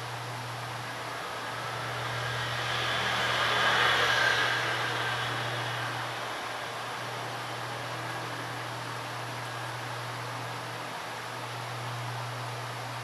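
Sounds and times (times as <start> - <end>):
steady low hum: 0.0 - 13.0
vehicle passing whoosh: 1.0 - 7.8.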